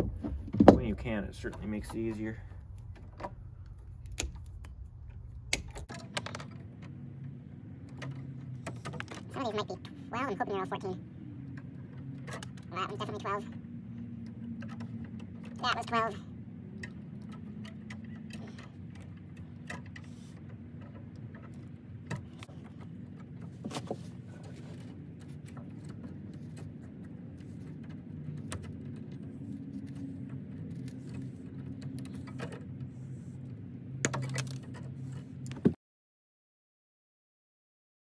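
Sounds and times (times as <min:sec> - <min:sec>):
steady low hum: 0:00.0 - 0:35.7
metallic clicks of tools and wires: 0:00.6 - 0:09.3.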